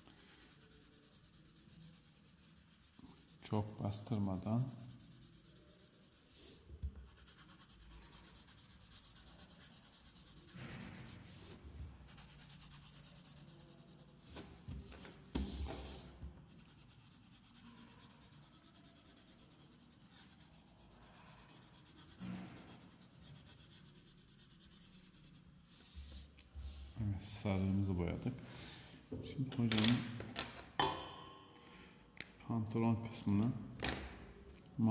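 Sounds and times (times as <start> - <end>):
pencil scratching on paper: 0.0 - 26.8
paper sliding across table: 14.2 - 16.2, 25.6 - 27.0.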